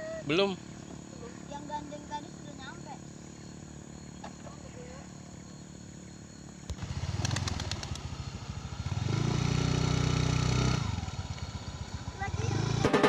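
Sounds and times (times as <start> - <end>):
motor scooter engine revving: 6.6 - 13.0.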